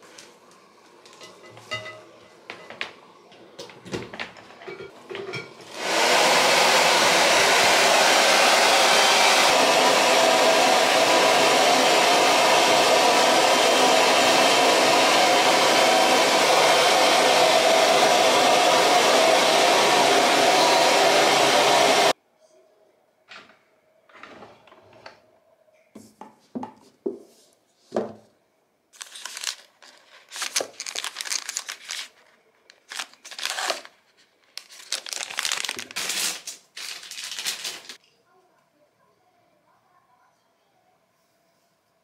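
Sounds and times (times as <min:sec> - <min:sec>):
hair dryer blowing: 0:05.6 - 0:22.2.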